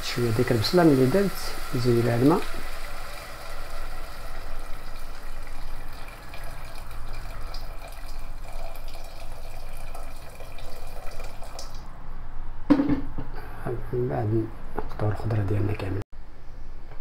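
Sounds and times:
water pouring into a pot: 0.0s - 11.9s.

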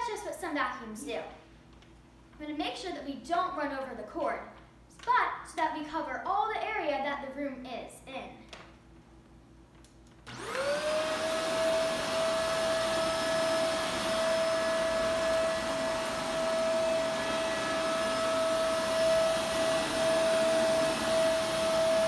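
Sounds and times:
vacuum cleaner motor whining: 10.2s - 22.0s.

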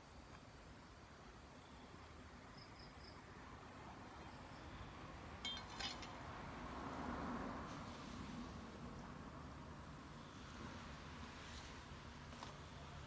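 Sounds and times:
faint background noise: 0.0s - 13.0s
knife clinking on concrete: 5.4s - 6.2s.

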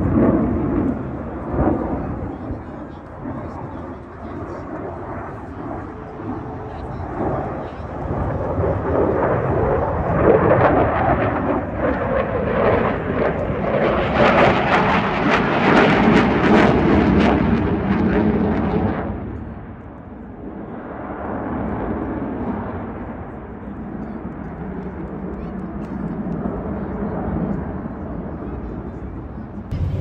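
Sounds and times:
fighter jet engine rumbling: 0.0s - 21.2s, 27.8s - 30.0s.

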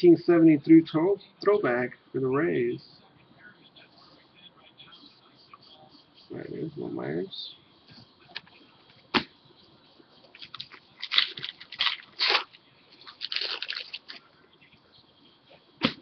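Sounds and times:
cards rustling: 10.3s - 14.2s.

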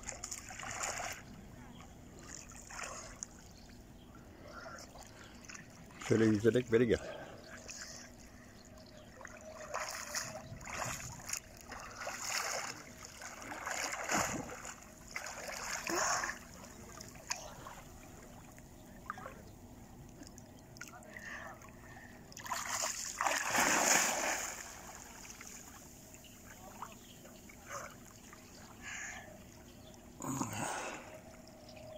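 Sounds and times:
child splashing in sea water: 9.7s - 16.5s, 22.4s - 25.0s.

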